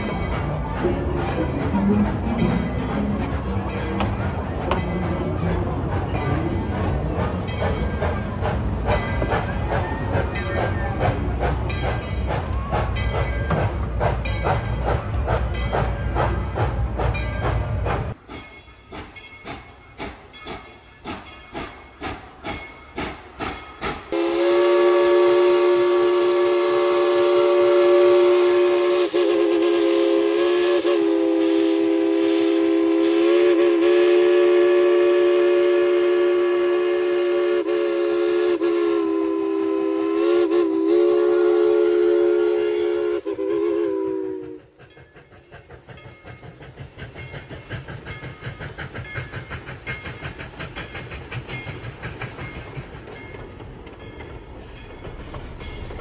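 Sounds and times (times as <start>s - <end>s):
steam locomotive exhaust chuffs: 0.0s - 56.0s
steam locomotive running: 0.0s - 56.0s
steam whistle: 24.1s - 44.7s.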